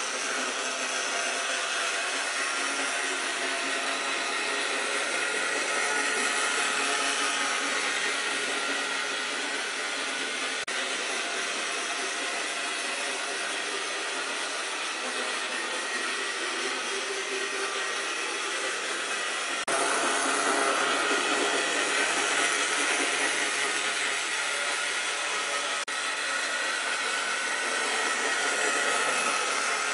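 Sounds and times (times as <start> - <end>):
model train motor whirring: 18.2 - 29.9.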